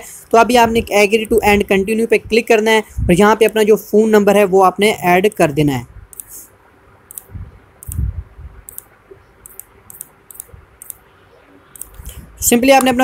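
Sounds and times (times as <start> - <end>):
soft low thumps: 0.6 - 2.4, 3.0 - 3.3, 7.3 - 8.6.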